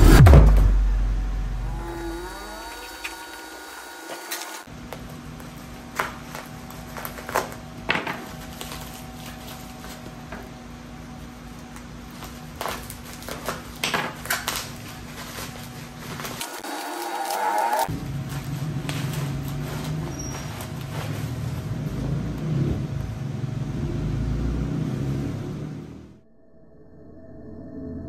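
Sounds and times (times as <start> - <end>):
steady low hum: 0.0 - 3.8
bubble wrap crinkling: 4.7 - 21.9.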